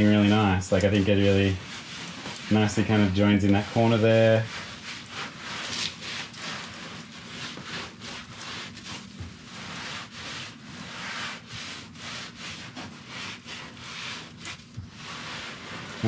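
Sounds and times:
sponge swishing on tiles: 0.0 - 16.0.

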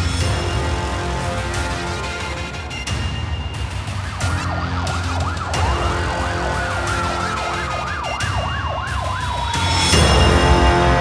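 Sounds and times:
slow gliding ambulance siren: 1.9 - 10.0
fast wailing ambulance siren: 1.9 - 10.1.

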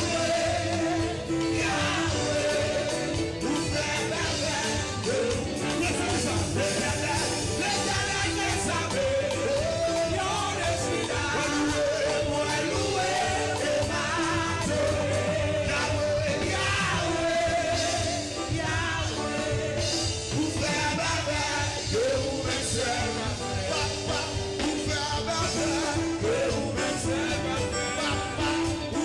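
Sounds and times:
band playing worship music: 0.0 - 29.0
man singing into microphone: 0.0 - 29.0.

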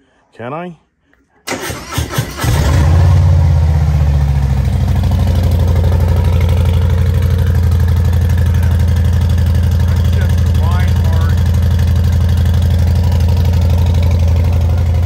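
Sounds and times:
motorcycle engine idling loud: 3.5 - 15.0.

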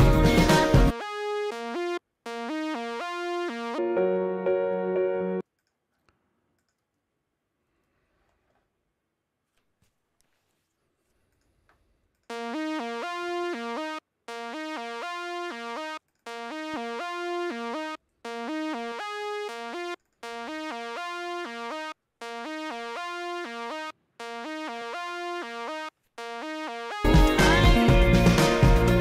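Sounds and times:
synthesizer lead melody: 0.0 - 5.4, 12.3 - 29.0.

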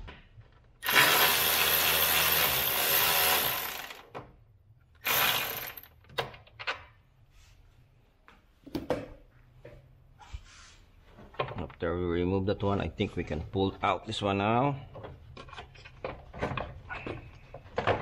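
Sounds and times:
electric ratchet running: 0.8 - 4.1, 5.0 - 5.9.

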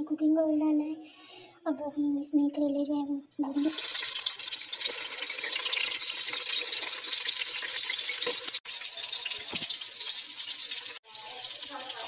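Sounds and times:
vegetables sizzling in oil: 3.6 - 12.0.

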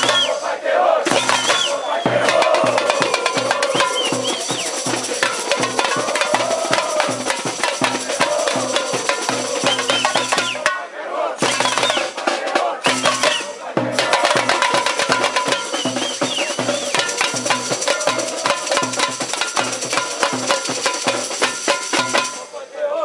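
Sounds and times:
tamborim and snare strikes: 0.0 - 0.4, 1.0 - 12.2, 12.8 - 22.5
crowd singing: 0.0 - 23.0
large drums beating: 1.0 - 10.8, 11.4 - 22.4.

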